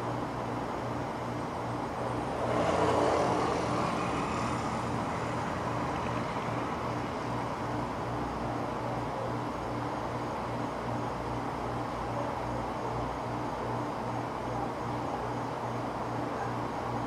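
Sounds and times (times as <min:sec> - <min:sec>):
road traffic noise: 0:00.0 - 0:17.0
vehicle passing by: 0:02.1 - 0:07.6.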